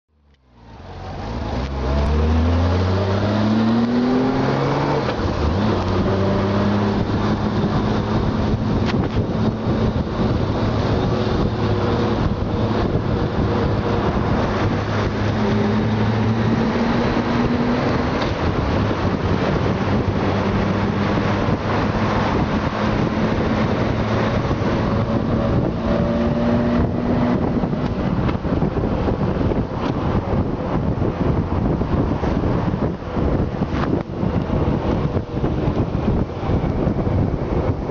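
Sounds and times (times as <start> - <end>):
wind and road rush: 0.1 - 37.9
motorcycle engine pulling away: 0.9 - 29.4.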